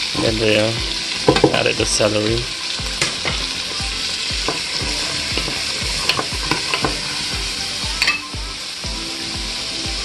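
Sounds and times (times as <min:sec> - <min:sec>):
vegetables sizzling in a pot: 0:00.0 - 0:10.0
spatula stirring: 0:02.9 - 0:08.2.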